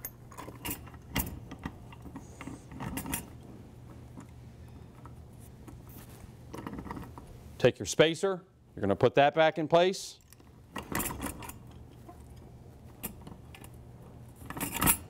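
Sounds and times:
metal clinks and knocks: 14.4 - 15.0.

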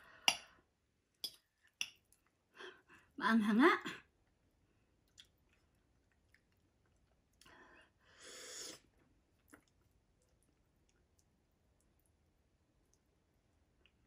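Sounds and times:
person chewing noodles: 4.9 - 7.6, 8.2 - 14.0.

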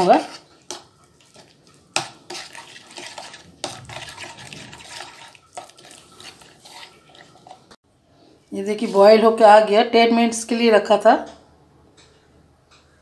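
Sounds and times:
spoon stirring thick mixture in bowl: 0.0 - 7.8.

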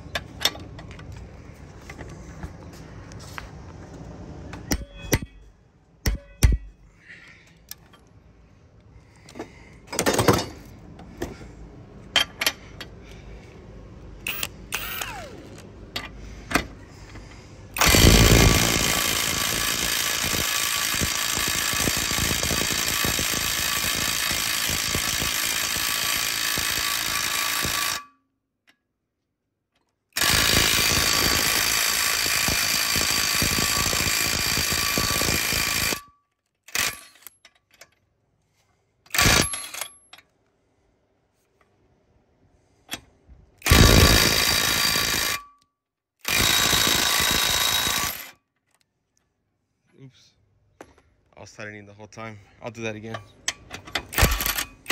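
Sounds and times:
impact wrench hammering: 4.6 - 6.9, 17.8 - 28.1, 53.5 - 54.9.

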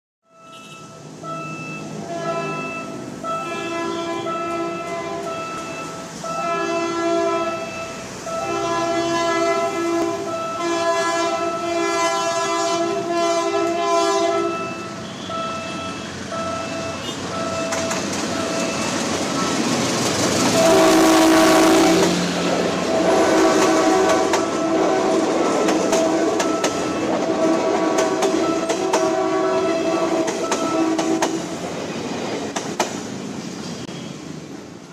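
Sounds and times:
train horn blasts: 0.3 - 31.5
train rumble: 0.5 - 34.9
train wheels clattering: 17.2 - 33.9.

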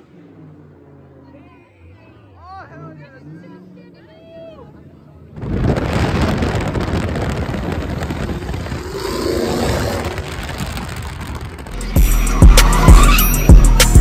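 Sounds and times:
car engine and spinning tyres: 0.0 - 14.0
song with deep bass and kick drum: 11.7 - 14.0.

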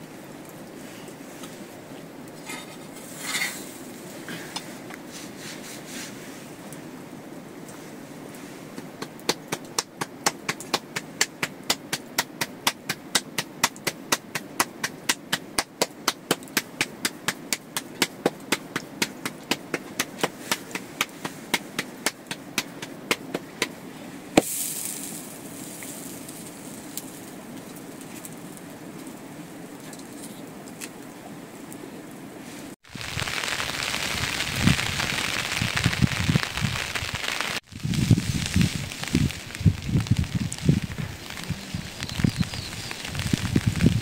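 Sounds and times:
steady background hiss: 0.0 - 44.0
rapid sharp knocking: 9.0 - 23.7
short hiss: 24.4 - 26.0.

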